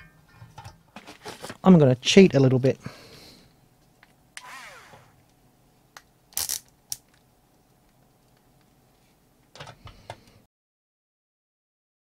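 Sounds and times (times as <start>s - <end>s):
drill motor whirring: 4.4s - 5.2s.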